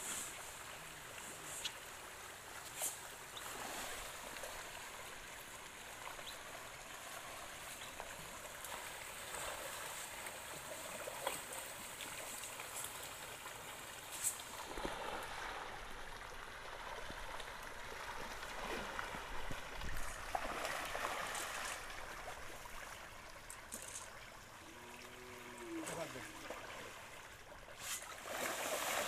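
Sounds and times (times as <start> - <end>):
fish splashing at water surface: 27.8 - 29.0.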